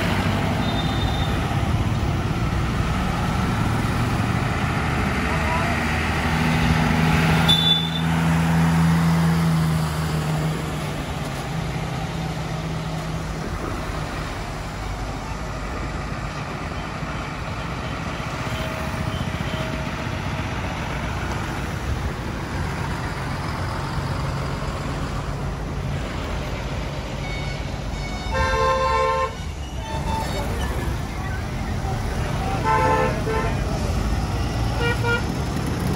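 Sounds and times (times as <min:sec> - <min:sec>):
diesel trucks passing: 0:00.0 - 0:35.9
road traffic noise: 0:00.0 - 0:35.9
vehicle horn: 0:07.5 - 0:08.1, 0:27.2 - 0:30.4, 0:32.5 - 0:33.7, 0:34.7 - 0:35.3.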